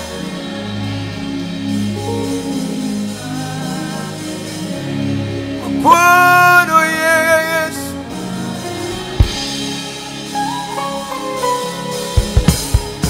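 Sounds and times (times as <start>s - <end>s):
instrumental backing of sustained chords: 0.0s - 13.0s
man singing worship song: 2.0s - 4.9s, 5.6s - 9.1s.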